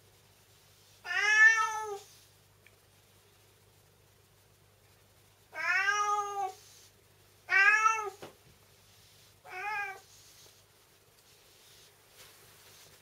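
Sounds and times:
cat meowing: 0:01.0 - 0:02.1, 0:05.5 - 0:06.6, 0:07.5 - 0:08.2, 0:09.4 - 0:10.1.

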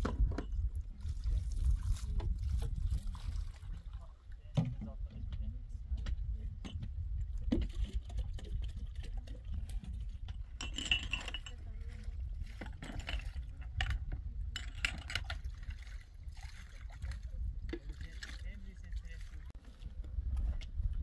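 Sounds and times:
wind buffeting microphone: 0:00.0 - 0:21.0
light clicks and clinks: 0:10.3 - 0:11.8.

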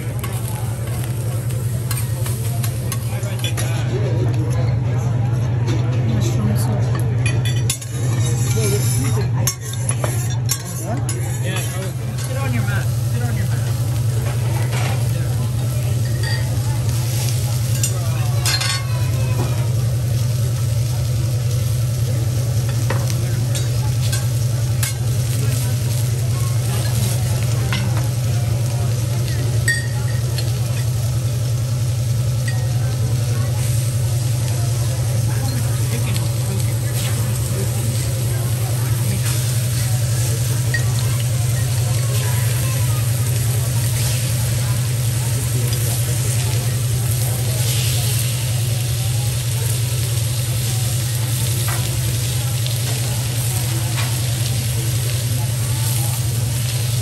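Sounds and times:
faint sizzle: 0:00.0 - 0:57.0
metal spatula scraping a griddle: 0:07.7 - 0:11.7.

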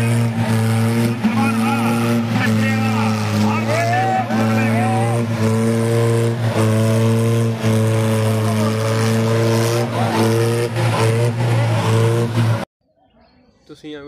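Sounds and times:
tractor engine at high revs: 0:00.0 - 0:12.7.

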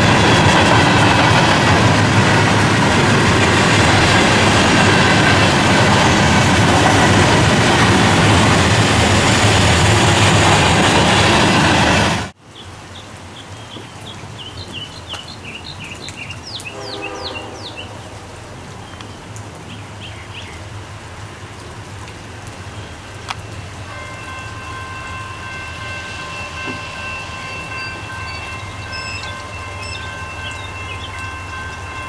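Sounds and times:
steady rain: 0:00.0 - 0:11.7, 0:12.3 - 0:32.0
distant train horn: 0:16.6 - 0:18.6, 0:23.9 - 0:32.0.

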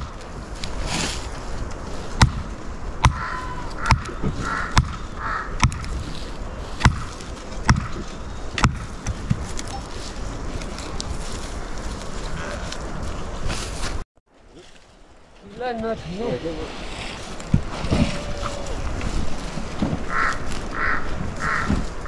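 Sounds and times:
short calls: 0:03.0 - 0:05.7.

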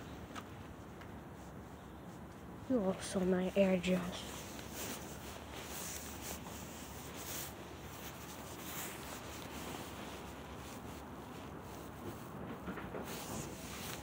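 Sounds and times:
low steady hiss: 0:00.0 - 0:14.0
soft scrapes: 0:01.4 - 0:12.3
phone rubbing against clothing: 0:04.2 - 0:11.9.

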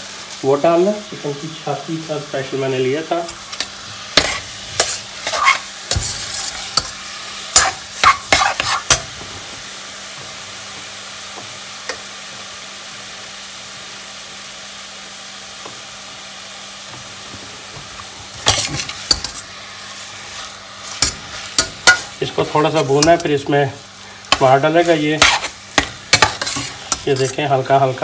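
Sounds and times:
meat sizzling in hot oil: 0:00.0 - 0:28.0
metal spoon scraping and knocking pot: 0:07.6 - 0:09.0, 0:21.0 - 0:22.1, 0:24.3 - 0:27.4.

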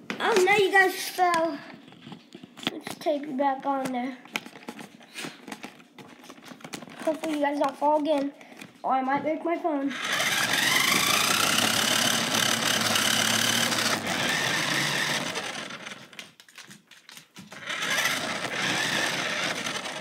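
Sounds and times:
toy car electric motor whine: 0:09.9 - 0:16.3, 0:17.5 - 0:20.0.

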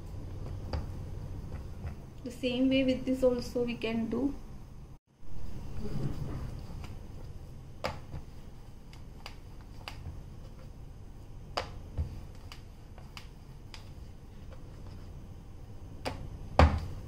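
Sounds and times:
low steady hum: 0:00.0 - 0:17.0
dough clicks and taps on board: 0:08.9 - 0:10.2, 0:11.5 - 0:14.6.

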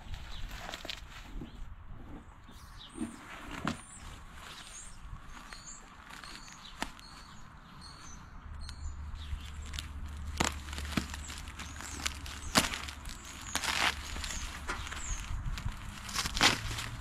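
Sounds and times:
birds chirping faintly: 0:00.0 - 0:17.0
plastic wrap rustling and crinkling: 0:03.4 - 0:07.4, 0:09.3 - 0:17.0
plastic wrap snapping: 0:09.4 - 0:17.0.

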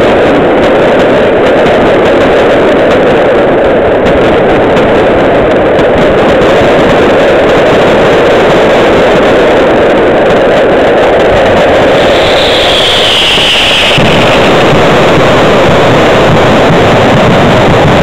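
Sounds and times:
fireworks: 0:00.0 - 0:18.0
falling whistle: 0:11.9 - 0:14.4.

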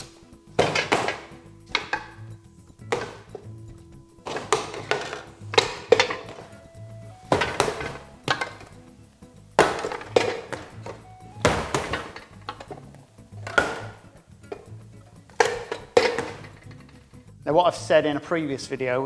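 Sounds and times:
dough thudding on metal: 0:00.0 - 0:03.6, 0:04.2 - 0:06.5, 0:07.2 - 0:08.8, 0:09.6 - 0:14.7, 0:15.3 - 0:16.8
background music: 0:00.0 - 0:19.0.

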